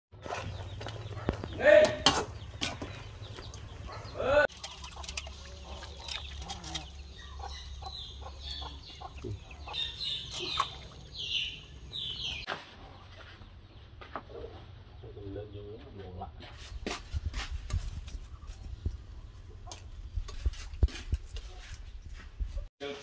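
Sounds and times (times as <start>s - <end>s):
chickens clucking: 0.2s - 15.2s, 18.2s - 20.5s.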